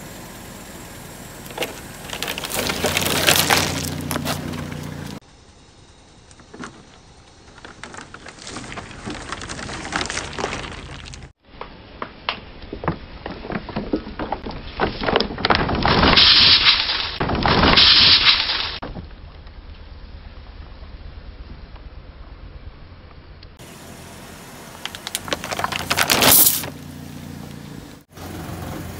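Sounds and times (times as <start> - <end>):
plastic bottles crackling under tyre: 1.4 - 5.2, 6.3 - 11.4, 12.4 - 18.6, 24.8 - 26.8.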